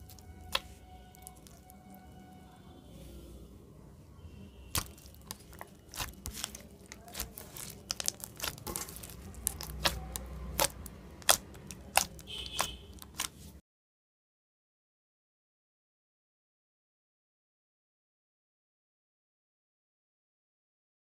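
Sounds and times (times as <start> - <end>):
slime kneaded with clicks and pops: 0.0 - 2.3, 4.7 - 13.5.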